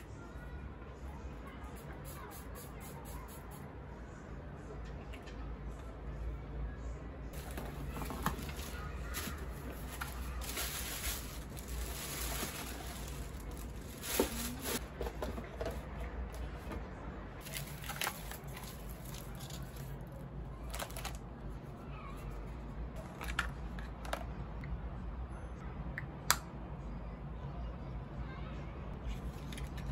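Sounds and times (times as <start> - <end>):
tissue paper rustling: 7.4 - 14.8.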